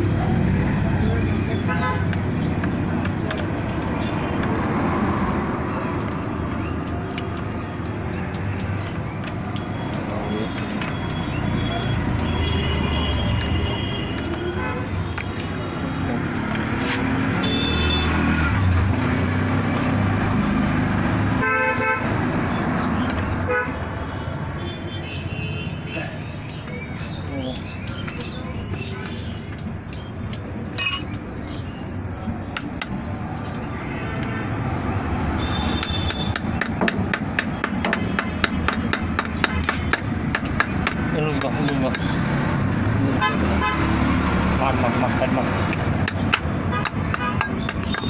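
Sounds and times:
car horn honking: 17.4 - 18.1, 21.4 - 22.1, 23.5 - 23.8, 43.2 - 43.8
rapid hammer strikes: 35.7 - 42.1, 45.7 - 48.0.

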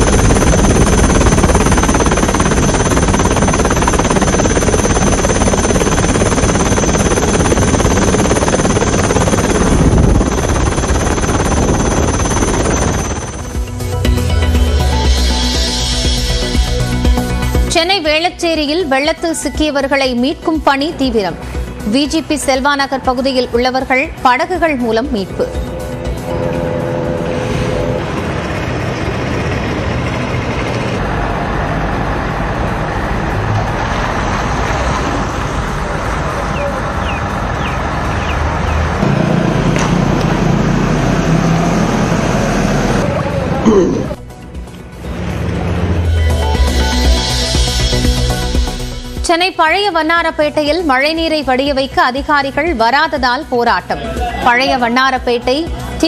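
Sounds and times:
helicopter rotor and engine: 0.0 - 17.8, 24.8 - 43.6
traffic rumble and road noise: 27.2 - 46.2.

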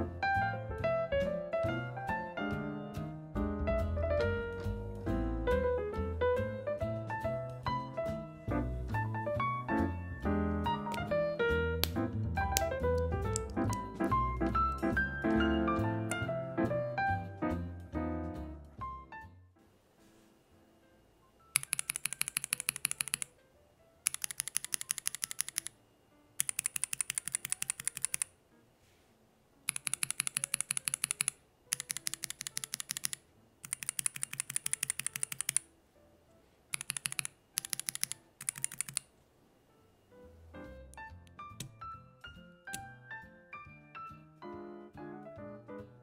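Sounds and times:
mechanical keyboard clacking: 21.5 - 23.3, 24.0 - 25.8, 26.4 - 28.3, 29.7 - 35.7, 36.7 - 39.1.

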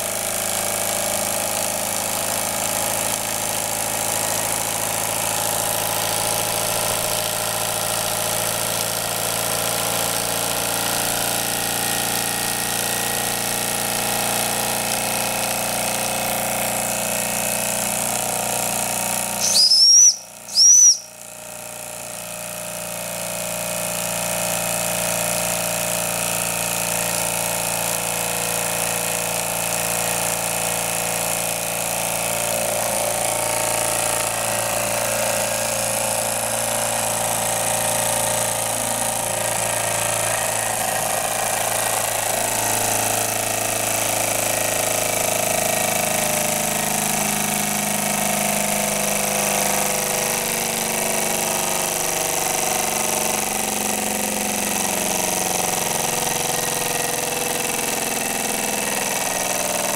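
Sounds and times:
toy steam engine running: 0.0 - 21.2, 22.0 - 59.9
loud high squeals: 19.4 - 21.1.

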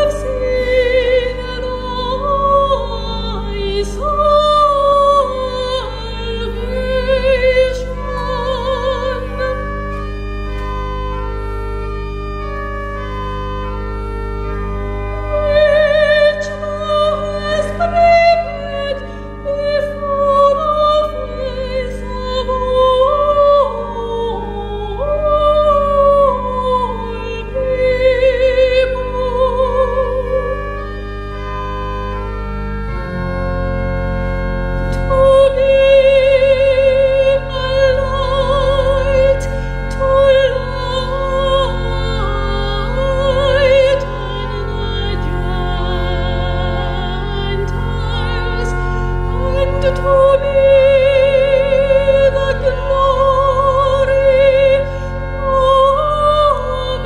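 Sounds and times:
woman singing classical solo: 0.0 - 10.1, 15.3 - 30.7, 35.0 - 57.0
sustained organ chords: 0.0 - 57.0.

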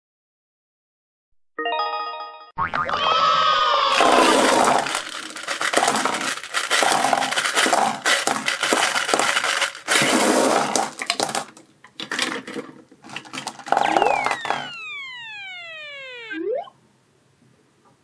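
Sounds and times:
candies clattering on tabletop: 4.0 - 14.6.

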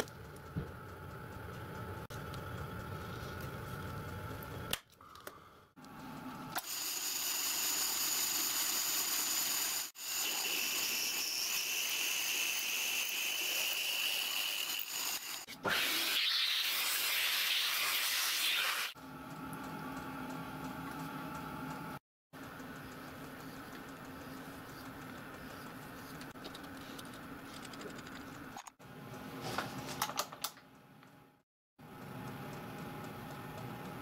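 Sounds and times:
drill cutting into steel: 6.6 - 19.0.

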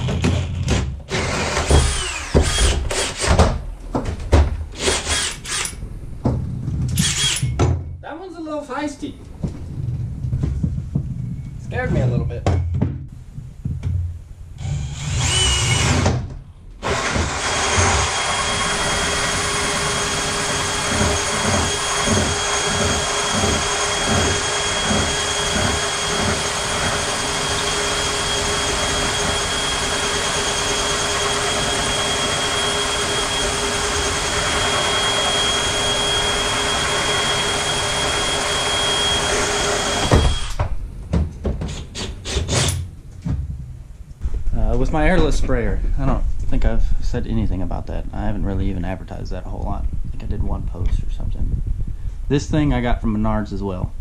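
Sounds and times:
cordless drill whining: 1.1 - 3.4, 4.8 - 5.8, 7.0 - 7.6, 14.6 - 16.1, 16.8 - 40.6.

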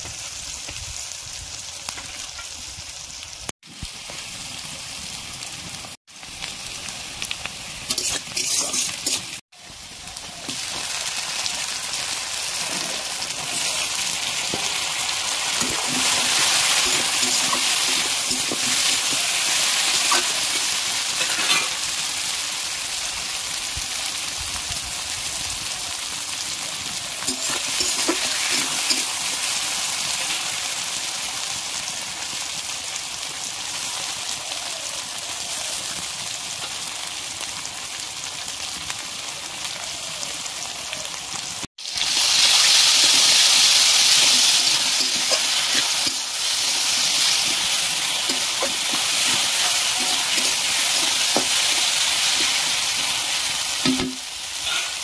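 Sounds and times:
food sizzling in hot oil: 0.0 - 55.0
spatula scraping wok: 7.8 - 9.4, 10.4 - 22.0, 27.2 - 30.5, 42.1 - 53.8, 54.6 - 55.0.

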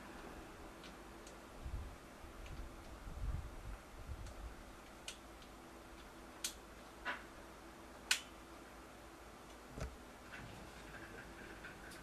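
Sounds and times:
faint steady hum: 0.0 - 12.0.

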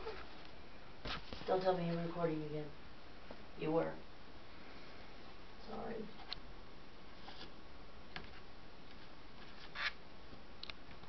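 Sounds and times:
paper rustling and scraping: 0.0 - 1.6, 8.3 - 10.0.

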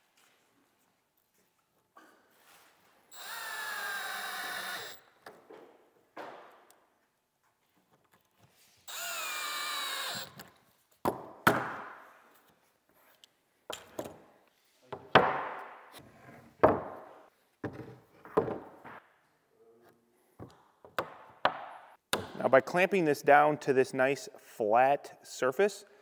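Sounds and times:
cordless drill whirring: 3.1 - 5.0, 8.9 - 10.5
tools knocking on wooden table: 16.6 - 17.0, 17.6 - 19.0.

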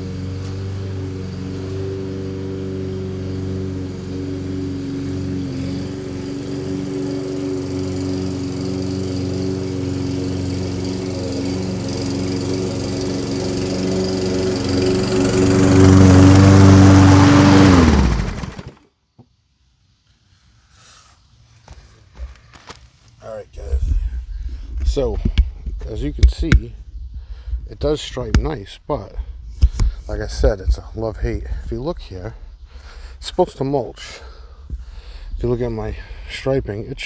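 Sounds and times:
lawn mower engine running: 0.0 - 18.9.

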